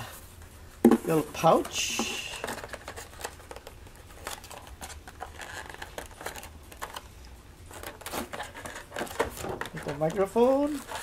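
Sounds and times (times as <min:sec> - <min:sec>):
plastic package crinkling: 0:01.9 - 0:07.1.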